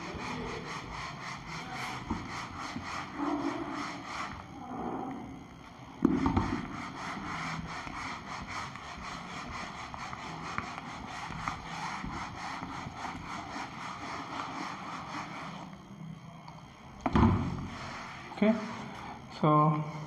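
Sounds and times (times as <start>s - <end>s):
eraser rubbing on whiteboard: 0.0s - 4.6s, 6.0s - 15.8s, 17.4s - 19.0s
loud thump: 17.0s - 17.5s.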